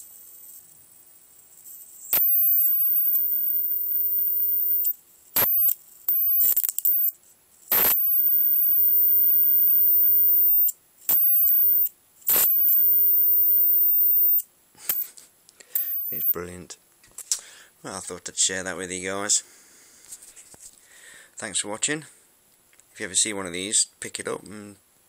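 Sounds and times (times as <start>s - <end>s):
high-pitched electric arc whine: 0.0s - 15.2s, 15.8s - 16.5s
sharp arc snap: 2.1s - 4.0s, 7.7s - 8.1s, 11.1s - 12.9s.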